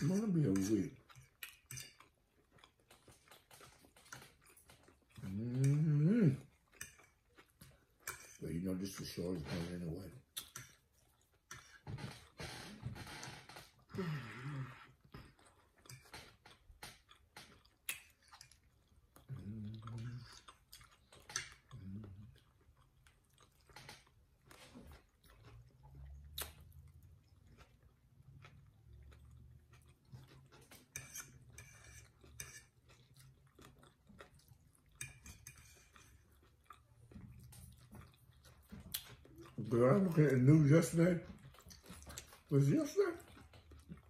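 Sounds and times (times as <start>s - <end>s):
chewing and mouth sounds: 0.0s - 44.0s.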